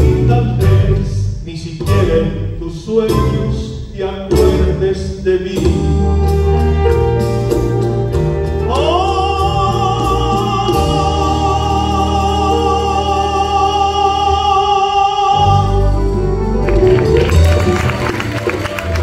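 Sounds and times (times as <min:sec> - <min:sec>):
man singing with vibrato: 0:00.0 - 0:06.9, 0:08.5 - 0:16.5
orchestra of strings and guitars: 0:00.0 - 0:19.0.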